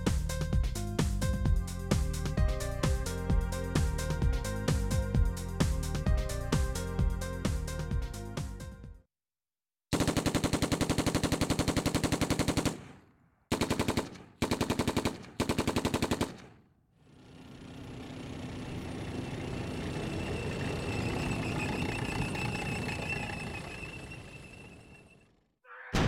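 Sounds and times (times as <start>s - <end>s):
automatic gunfire: 9.9s - 16.6s.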